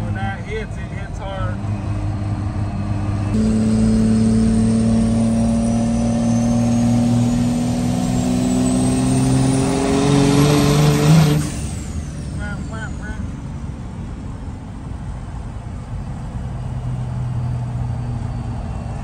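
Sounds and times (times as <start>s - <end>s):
diesel engine under full throttle: 0.0s - 19.0s
high turbo whistle: 3.3s - 13.2s.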